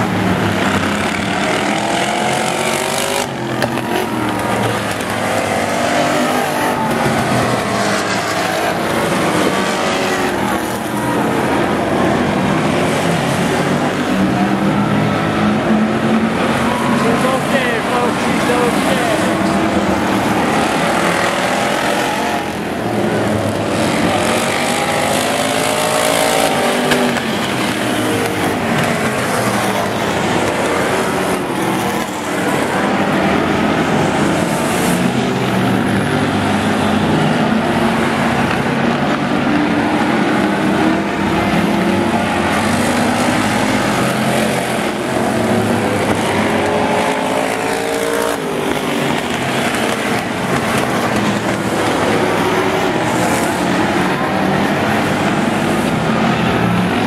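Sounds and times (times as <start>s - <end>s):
race car engines: 0.0s - 57.0s.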